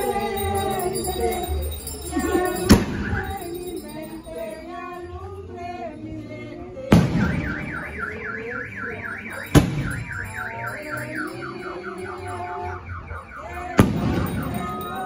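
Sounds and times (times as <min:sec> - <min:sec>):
car alarm warbling siren: 0:00.0 - 0:03.8, 0:07.1 - 0:15.0
firecracker bangs: 0:06.9 - 0:07.9, 0:09.5 - 0:10.2, 0:13.8 - 0:14.6.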